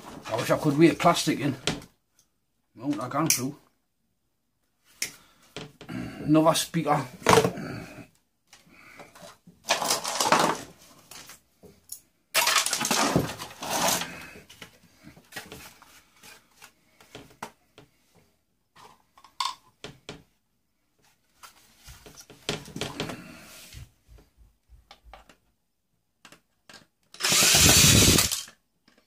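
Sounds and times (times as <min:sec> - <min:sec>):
metal and plastic clattering: 0:09.1 - 0:11.3, 0:12.4 - 0:14.1.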